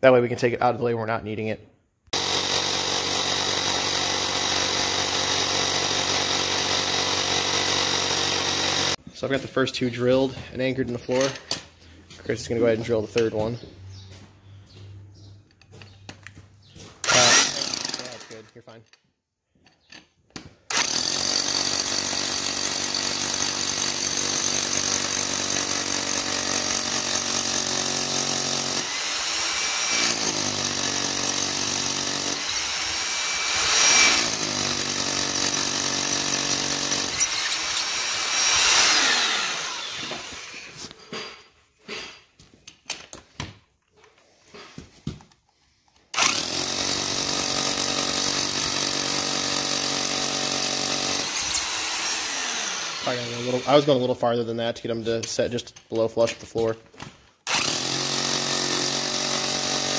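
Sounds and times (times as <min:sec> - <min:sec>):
hammer drill boring concrete: 0:02.1 - 0:09.0, 0:17.0 - 0:18.5, 0:20.7 - 0:41.3, 0:46.1 - 0:54.1, 0:57.4 - 0:59.9.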